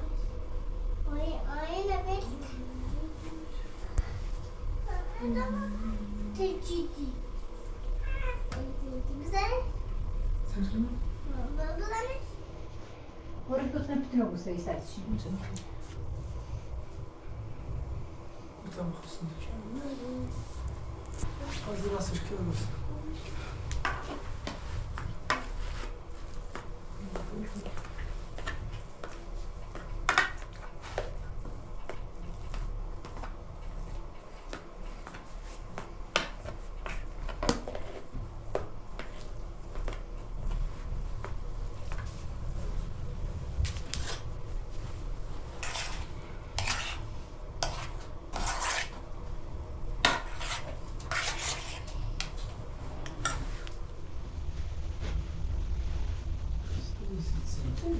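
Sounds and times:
low rumble: 0.0 - 30.1, 39.3 - 47.7, 52.0 - 57.9.

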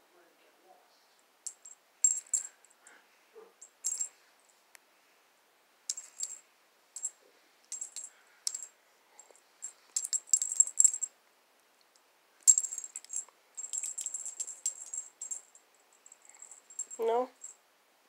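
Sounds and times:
cat toy bell jingling: 1.4 - 2.7, 3.6 - 4.1, 5.9 - 6.4, 7.0 - 8.7, 9.6 - 11.1, 12.5 - 17.6.

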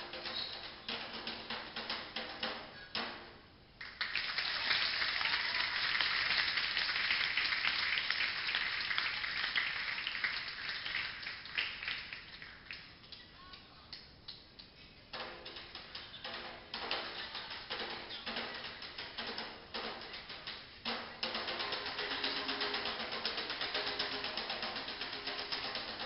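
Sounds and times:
hand drumming on djembes: 15.1 - 26.0.

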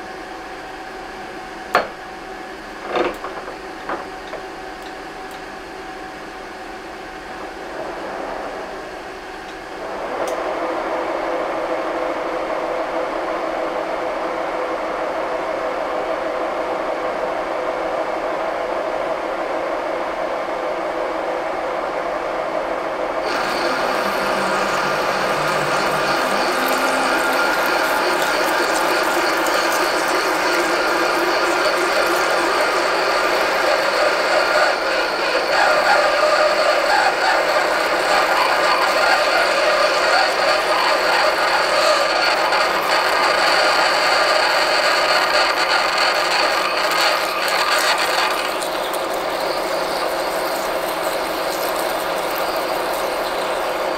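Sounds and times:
lathe spindle whine: 22.8 - 53.9.

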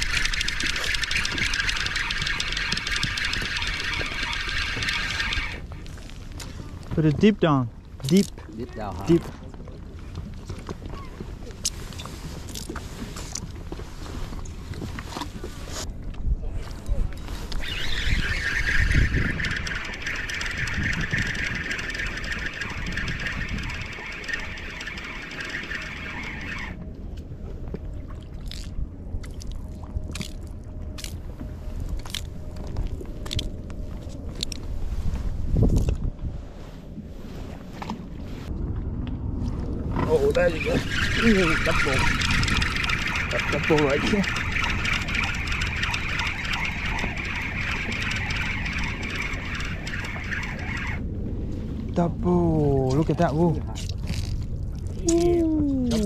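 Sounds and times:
fishing reel whirring and ticking: 0.0 - 5.7, 17.5 - 26.8, 40.3 - 51.0
wind buffeting microphone: 0.0 - 56.0.

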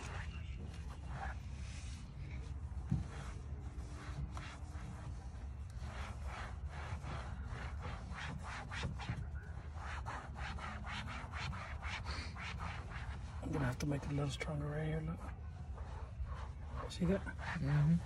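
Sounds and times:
cloth wiping vinyl panel: 0.0 - 18.0.

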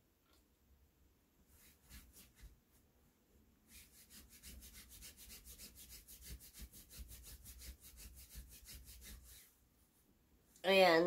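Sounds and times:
hand scrubbing fabric sheet: 1.5 - 2.6, 3.7 - 9.6.

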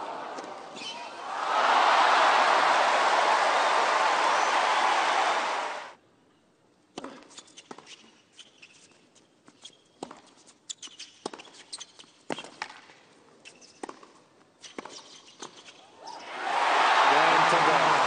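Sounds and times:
shoes squeaking on hard court: 7.0 - 15.9.

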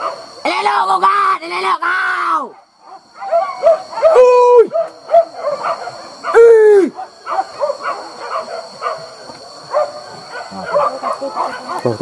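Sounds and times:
dog howling: 2.8 - 9.1
dogs yelping: 2.8 - 12.0.

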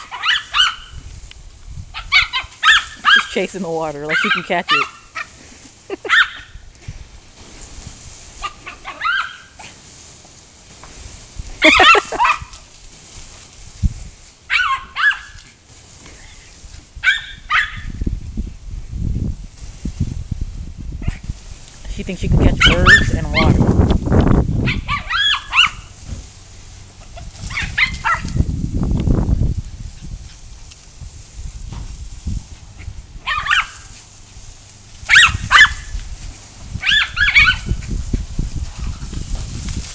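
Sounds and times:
small dog barking: 0.0 - 1.0, 2.0 - 3.3, 4.1 - 5.3, 6.0 - 6.5, 8.4 - 9.7, 11.6 - 12.5, 14.5 - 15.4, 17.0 - 18.0, 22.6 - 23.6, 24.6 - 25.9, 27.5 - 28.4, 33.2 - 33.8, 35.1 - 35.9, 36.8 - 37.8.

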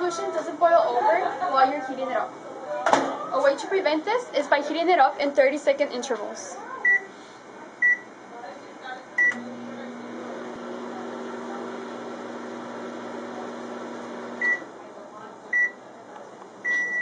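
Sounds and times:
microwave beeping: 7.8 - 8.1, 9.2 - 14.7, 16.6 - 17.0
microwave humming: 9.1 - 14.9.

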